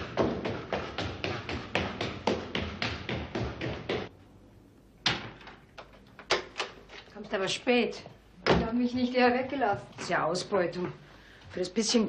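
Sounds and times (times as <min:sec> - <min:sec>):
footsteps running up stairs: 0:00.0 - 0:04.2.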